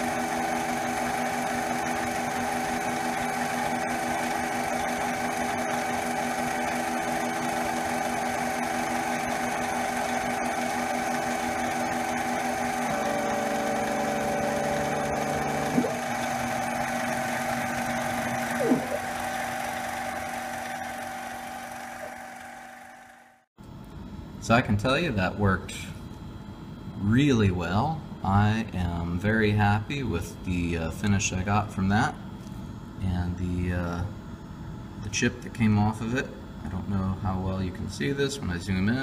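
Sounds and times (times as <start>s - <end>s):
end mill cutting aluminum: 0.0s - 23.4s
lathe motors whining: 0.0s - 23.4s
sliding-pitch motor chirps: 8.6s - 23.4s.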